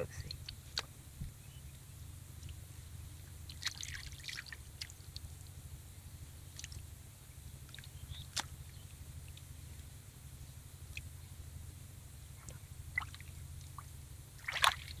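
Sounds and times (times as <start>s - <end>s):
low steady hum: 0.0s - 15.0s
fish flipping wet squishes: 3.5s - 5.0s, 14.4s - 15.0s.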